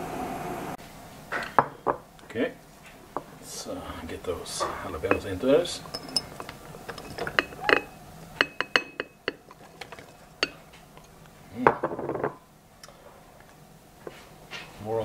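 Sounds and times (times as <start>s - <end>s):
pieces clinking on glass: 5.0s - 10.6s.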